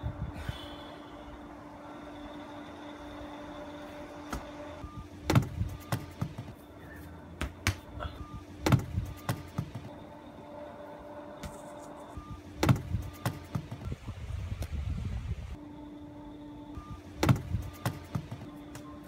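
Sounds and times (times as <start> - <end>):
steady background hum: 0.0 - 19.0
ball thudding into plastic bin: 5.3 - 6.4, 12.6 - 13.6, 17.2 - 18.2.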